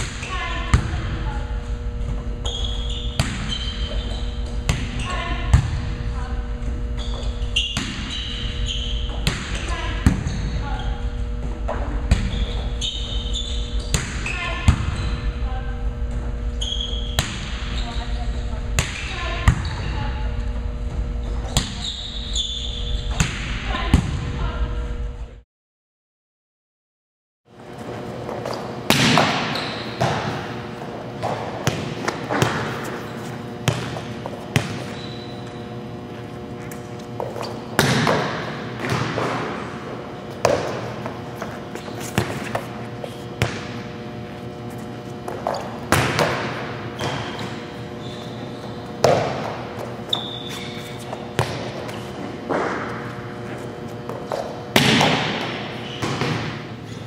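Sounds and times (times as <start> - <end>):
ball hitting court: 0.0 - 1.2, 2.1 - 3.8, 4.4 - 6.0, 7.6 - 8.3, 9.0 - 10.6, 11.4 - 12.6, 13.8 - 15.1, 17.0 - 17.7, 18.7 - 19.9, 23.1 - 24.3, 28.2 - 35.3, 36.7 - 43.9, 45.2 - 47.7, 49.0 - 56.8
steady hum: 0.0 - 25.4, 27.5 - 57.0
high-pitched shoe squeaks: 2.4 - 5.3, 7.0 - 11.0, 12.2 - 15.3, 16.6 - 18.3, 21.2 - 23.2, 29.4 - 30.0, 34.8 - 35.6, 47.0 - 48.9, 50.0 - 52.1.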